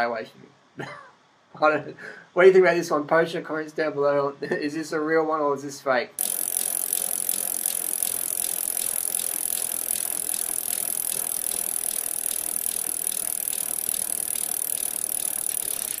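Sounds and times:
bicycle freewheel ticking: 0:06.2 - 0:16.0.

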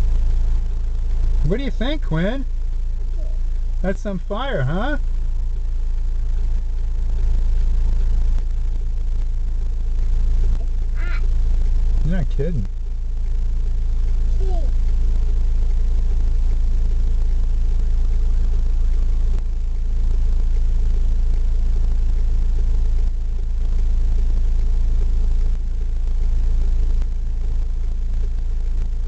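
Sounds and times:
low vehicle engine rumble: 0:00.0 - 0:29.0.

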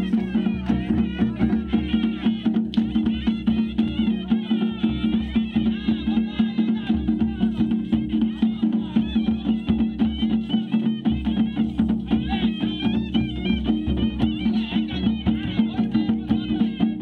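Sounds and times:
drums beating: 0:00.0 - 0:17.0
reedy pipe melody: 0:00.0 - 0:17.0.

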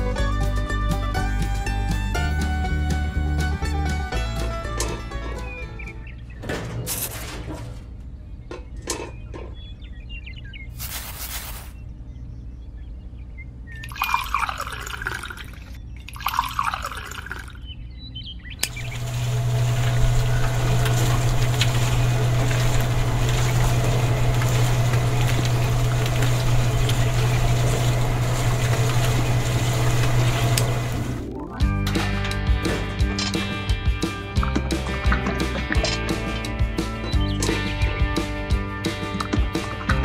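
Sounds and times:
water splashing into drum: 0:18.8 - 0:31.2
wet mix churning: 0:18.8 - 0:31.2.

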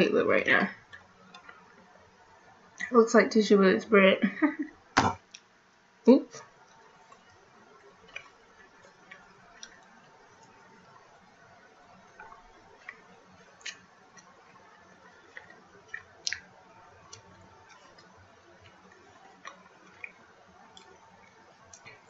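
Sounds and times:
person chewing: 0:08.0 - 0:11.2, 0:12.0 - 0:22.0.

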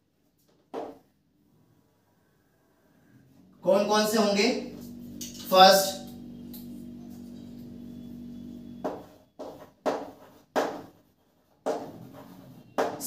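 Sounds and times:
steady low hum: 0:03.2 - 0:09.1.

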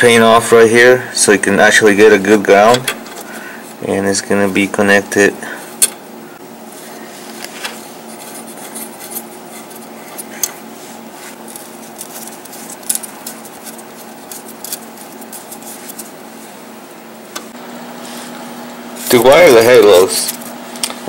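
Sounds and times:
steady low hum: 0:00.0 - 0:21.0
metallic clicks and rubbing: 0:11.3 - 0:16.1.

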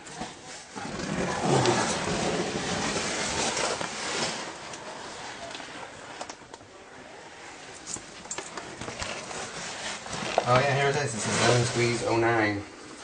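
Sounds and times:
clothing brushing rock: 0:00.2 - 0:06.2, 0:08.7 - 0:12.5
camera handling rustle: 0:07.8 - 0:10.5.

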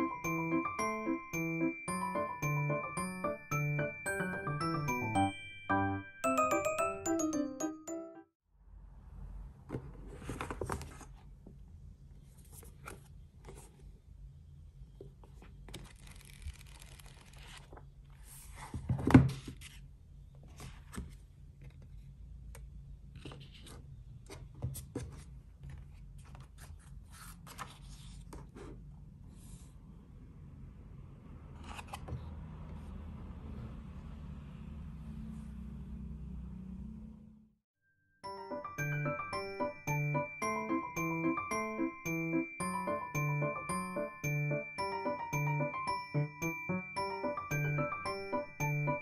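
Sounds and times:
paper rustling: 0:15.4 - 0:19.8, 0:24.9 - 0:28.5.

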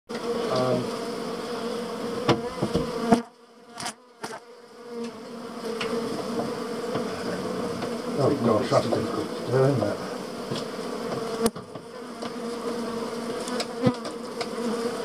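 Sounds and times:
bees buzzing: 0:00.1 - 0:15.0
sharp knocks: 0:02.2 - 0:02.9.

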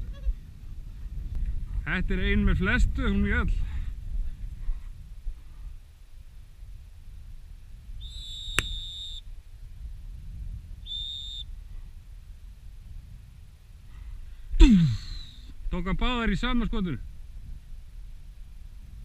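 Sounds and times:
wind rumble on microphone: 0:00.0 - 0:19.0
dog whistle blasts: 0:08.0 - 0:09.2, 0:10.8 - 0:11.5, 0:15.0 - 0:15.5
sharp click: 0:08.5 - 0:08.8.

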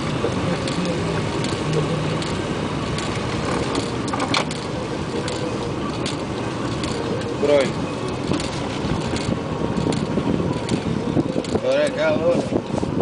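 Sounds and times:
motorboat engine running: 0:00.0 - 0:13.0
water noise: 0:00.0 - 0:13.0
wind: 0:00.0 - 0:13.0.

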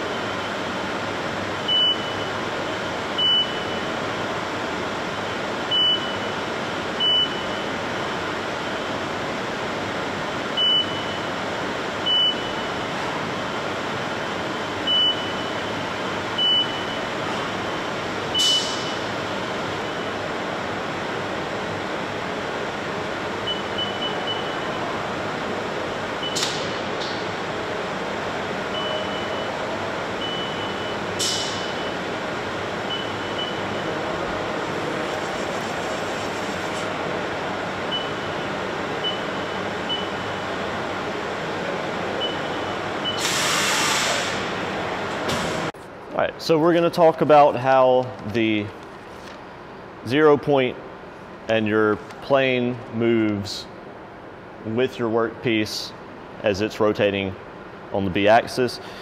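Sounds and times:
machine hum: 0:00.0 - 0:43.1
brief high hisses: 0:43.2 - 0:44.4.

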